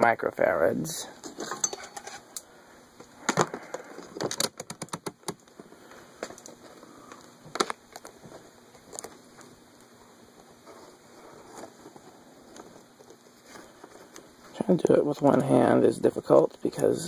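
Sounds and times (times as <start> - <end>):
knocks and rattles of rummaging: 1.2 - 2.2, 3.2 - 5.4.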